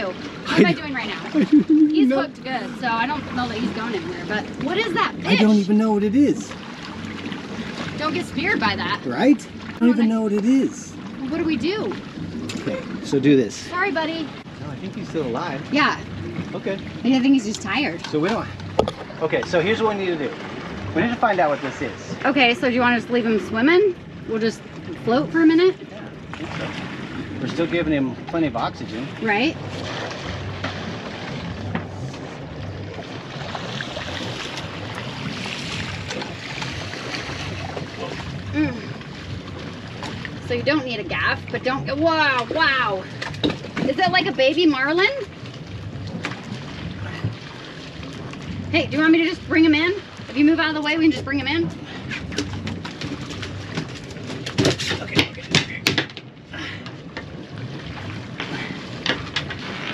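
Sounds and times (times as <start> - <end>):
water washing around hull: 0.0 - 59.9
fish knocking and slapping: 18.0 - 19.6, 42.3 - 44.4, 52.1 - 56.4.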